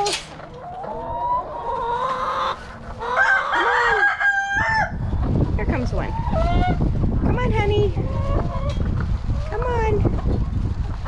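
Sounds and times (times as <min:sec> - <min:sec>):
rooster crowing: 0:03.2 - 0:05.0
low rumble: 0:04.4 - 0:11.0.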